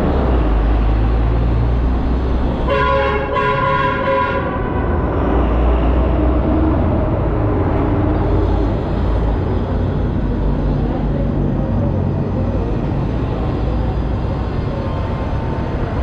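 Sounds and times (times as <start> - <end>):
multi-tone horn blasts: 2.7 - 4.9.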